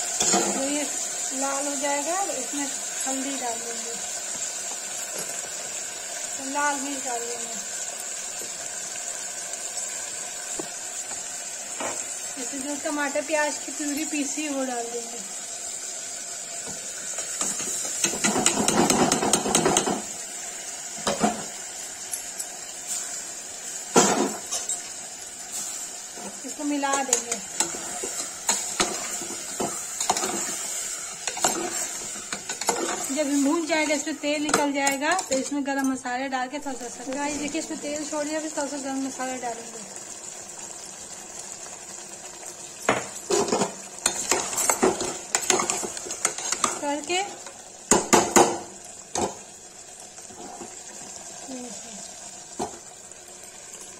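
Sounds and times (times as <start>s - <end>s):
masala frying sizzle: 0.0s - 53.9s
metal kitchenware knocking on cooker: 18.0s - 20.1s.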